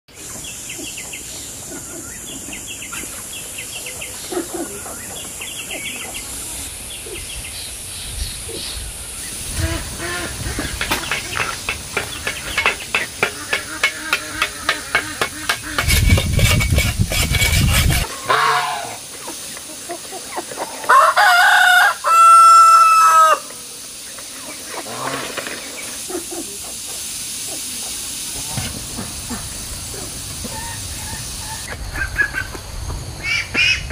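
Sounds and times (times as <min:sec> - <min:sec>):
hens clucking: 0:09.2 - 0:33.9
rooster crowing: 0:20.8 - 0:23.5.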